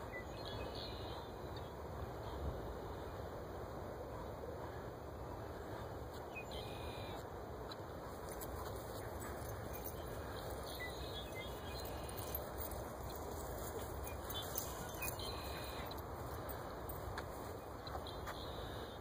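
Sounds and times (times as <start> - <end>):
outdoor background noise: 0.0 - 19.0
faint distant bird calls: 4.2 - 19.0.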